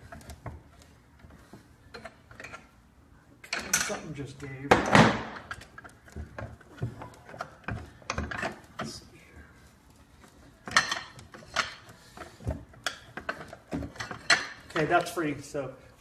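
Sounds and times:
metal clicks and knocks: 3.4 - 9.0.

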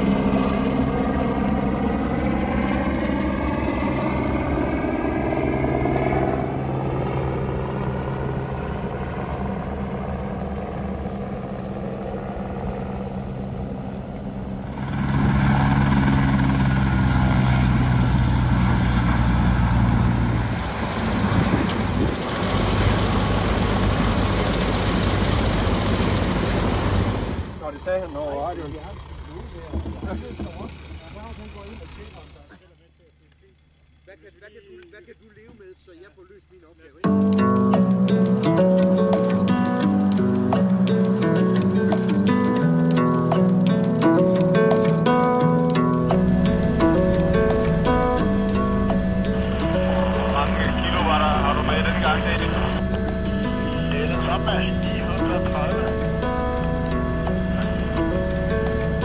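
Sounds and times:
helicopter turbine and rotor: 0.0 - 59.0.

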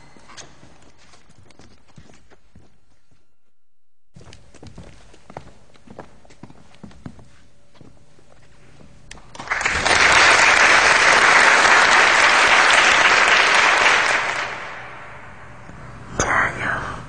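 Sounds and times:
audience applauding: 9.2 - 15.4.

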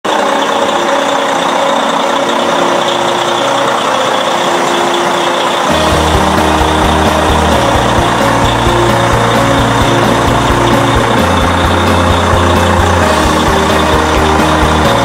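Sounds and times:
diesel truck engines idling: 0.1 - 15.0
deep rumble with thumps: 5.7 - 15.0.

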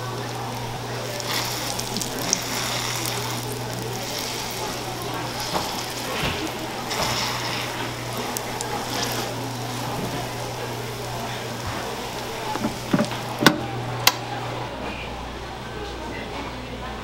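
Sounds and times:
dough sizzling in waffle iron: 0.0 - 13.5.

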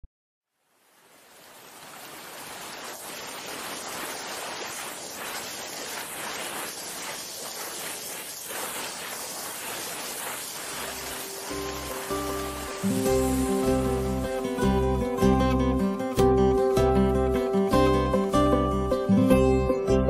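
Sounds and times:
steady rushing noise: 1.3 - 16.2.

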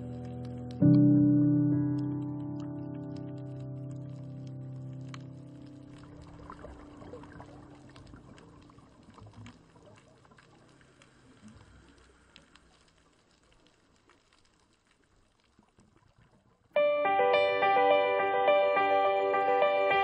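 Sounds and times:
background music: 0.0 - 6.0, 16.8 - 20.0
small underwater clicks: 2.0 - 16.8.

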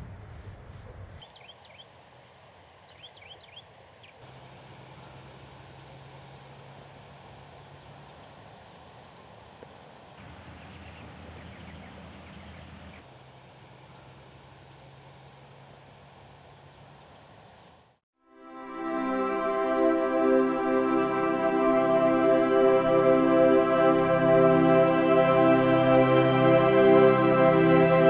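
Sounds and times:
small birds chirping: 1.2 - 2.0, 2.9 - 18.0.

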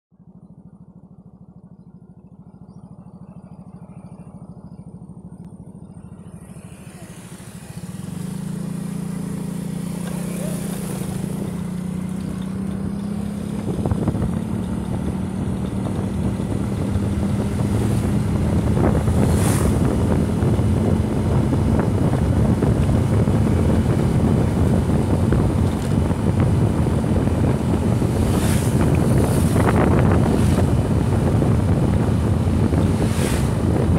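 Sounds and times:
motorcycle engine hum: 0.1 - 33.9
wind rushing over microphone: 6.9 - 33.9.

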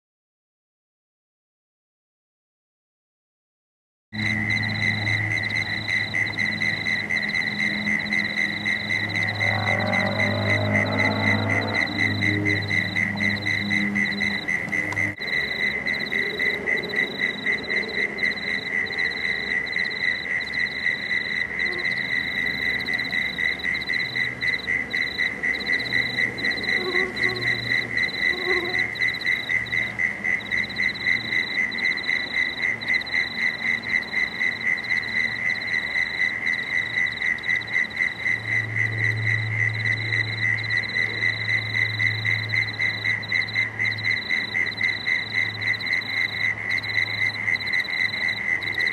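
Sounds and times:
low hum: 4.2 - 32.1
frogs calling in chorus: 4.2 - 48.9.

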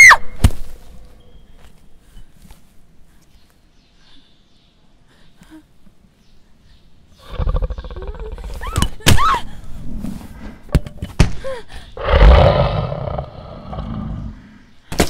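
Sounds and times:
low rough growl: 7.2 - 8.4, 12.0 - 14.6.

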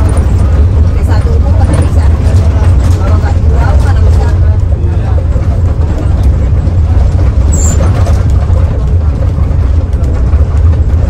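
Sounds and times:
bus engine and road rumble: 0.0 - 11.0
brief high squeak: 7.5 - 7.9.

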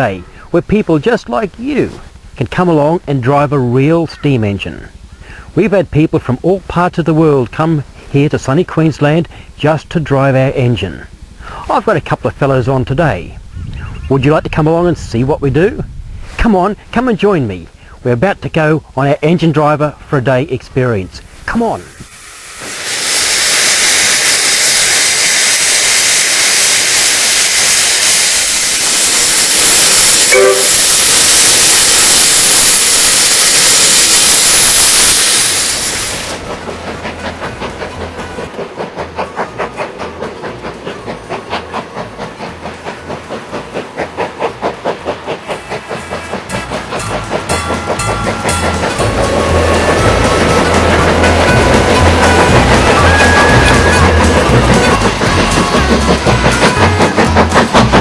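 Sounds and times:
steam locomotive chuffing: 16.5 - 58.0
steam hissing: 21.2 - 58.0
short pitched tone: 30.3 - 31.1.

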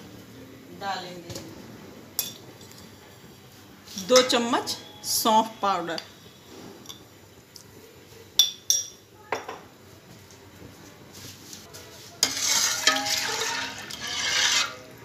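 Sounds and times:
clinks against a metal pot: 8.4 - 9.7, 12.2 - 14.8
metal spoon stirring water in pot: 12.2 - 15.0.

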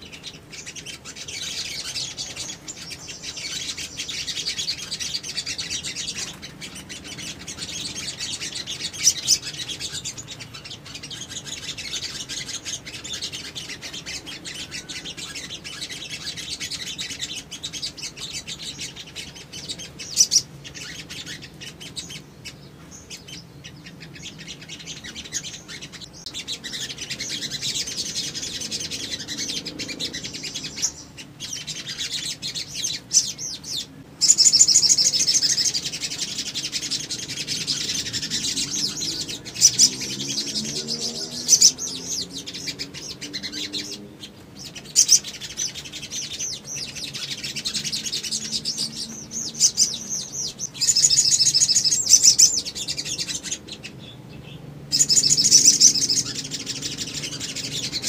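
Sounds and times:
birds chirping and trilling: 0.0 - 58.0.

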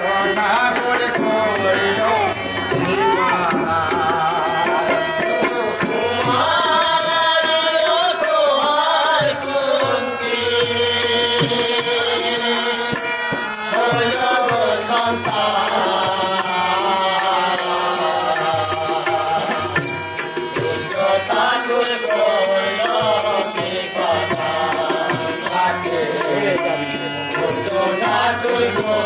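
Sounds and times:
jingling percussion: 0.0 - 29.0
men singing together: 0.0 - 29.0
hand drum beat: 0.9 - 6.5.

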